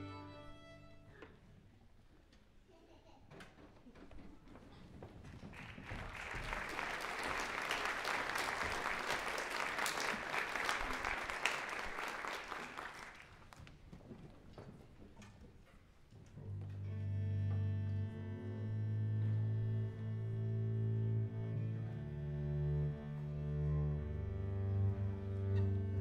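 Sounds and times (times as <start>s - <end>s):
audience applauding: 5.3s - 13.6s.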